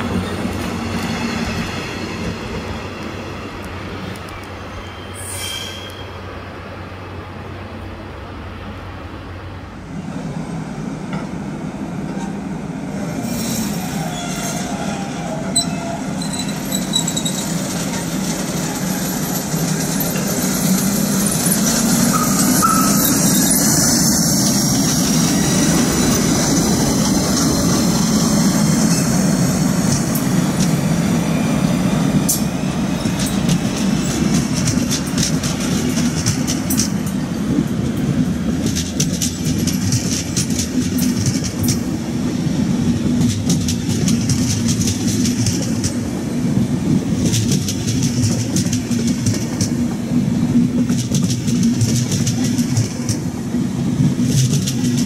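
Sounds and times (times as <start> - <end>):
train running past: 0.0 - 55.0
wheels squealing: 13.3 - 29.2.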